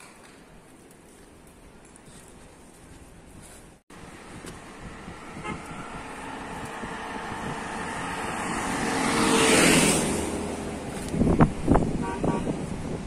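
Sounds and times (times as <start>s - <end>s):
car passing by: 4.0s - 11.9s.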